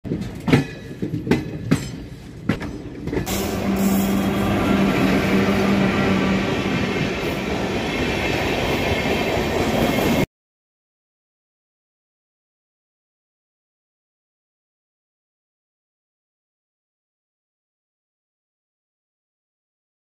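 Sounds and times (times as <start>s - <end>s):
train coaches rumbling and rattling: 0.0s - 10.3s
train wheels knocking on rail joints: 0.1s - 4.6s.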